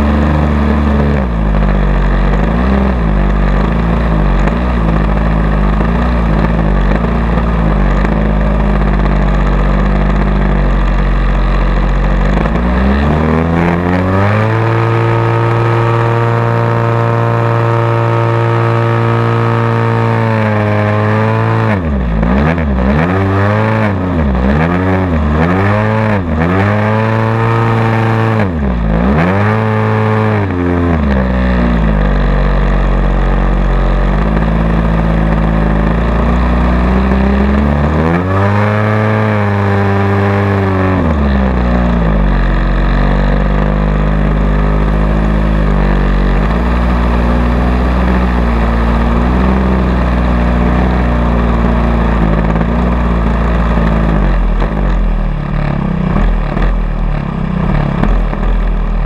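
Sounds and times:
model airplane engine: 0.0 - 29.0.

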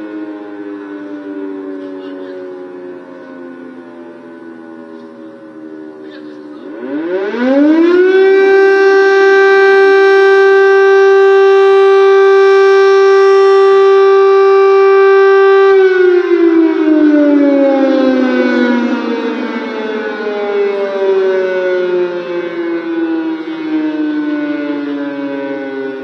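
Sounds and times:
air-raid siren: 0.0 - 26.0.

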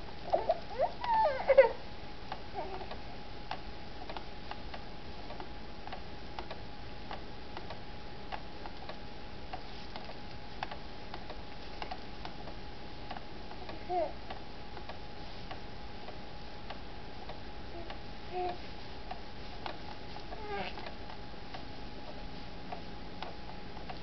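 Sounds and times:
faint steady hum: 0.0 - 24.0
baby babbling squeals: 0.4 - 1.8.

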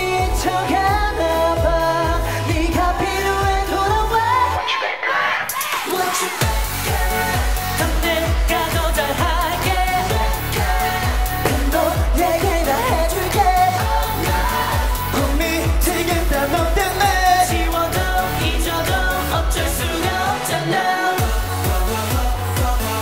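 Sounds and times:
pop song with singing: 0.0 - 23.0
heavy kick drum beat: 6.4 - 20.3, 21.2 - 23.0.

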